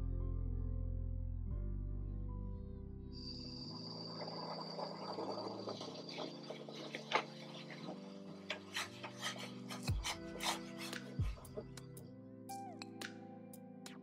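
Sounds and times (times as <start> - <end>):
soft background music: 0.0 - 14.0
dry rubbing rasping: 4.2 - 12.0.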